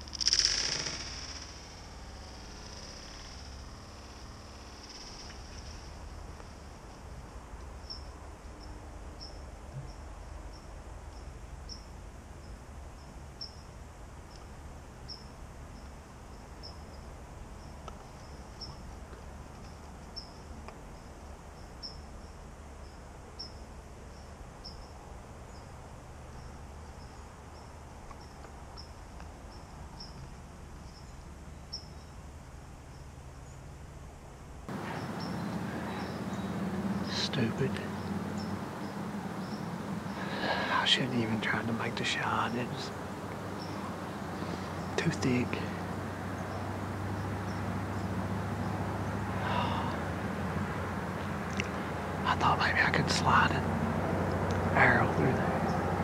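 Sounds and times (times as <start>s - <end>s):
low steady rumble: 0.0s - 21.5s, 22.1s - 56.0s
cricket chirping: 0.0s - 56.0s.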